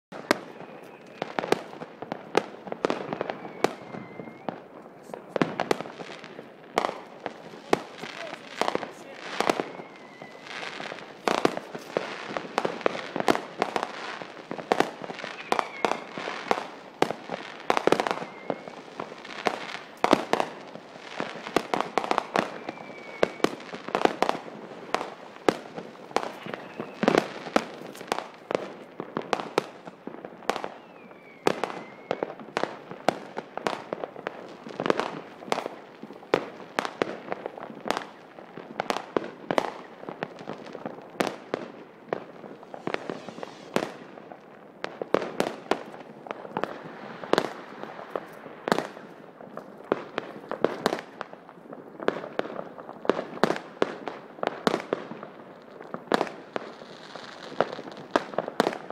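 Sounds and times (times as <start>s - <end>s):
firework whistles: 0.1s - 28.5s, 29.4s - 33.2s, 42.2s - 44.2s
fireworks bangs and crackles: 0.1s - 58.9s.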